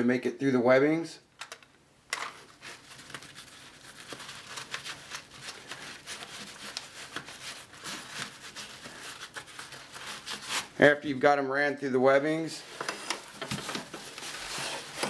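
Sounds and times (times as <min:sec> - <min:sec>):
straps rustling through webbing: 0:02.2 - 0:10.8, 0:12.2 - 0:15.0.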